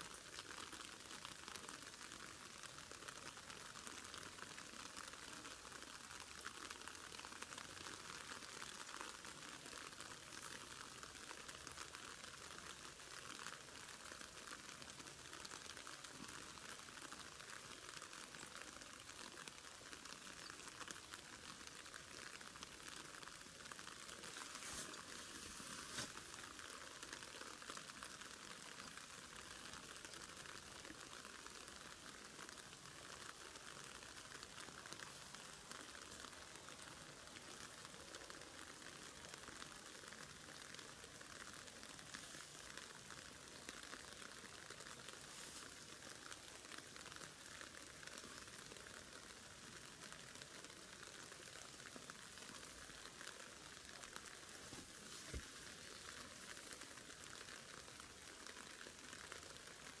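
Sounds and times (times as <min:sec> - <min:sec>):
faint hiss with crackle: 0:00.0 - 1:00.0.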